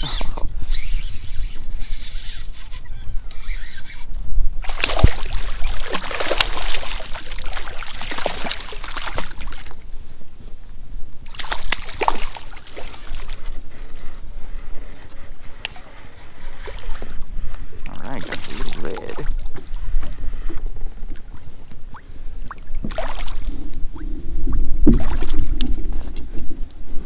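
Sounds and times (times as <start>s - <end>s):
water splashing around kayak: 4.6s - 10.2s, 11.2s - 27.0s.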